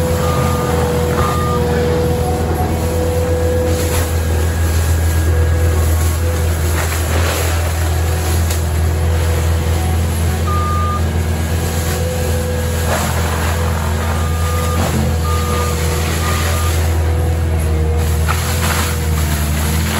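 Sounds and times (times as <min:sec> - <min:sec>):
diesel engine droning: 0:00.0 - 0:19.9
short high beeps: 0:00.2 - 0:01.7, 0:10.5 - 0:11.0, 0:14.2 - 0:16.9.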